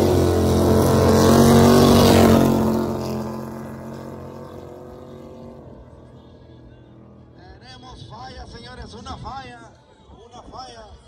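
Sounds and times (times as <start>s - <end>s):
drag car engine running hard: 0.0s - 6.6s.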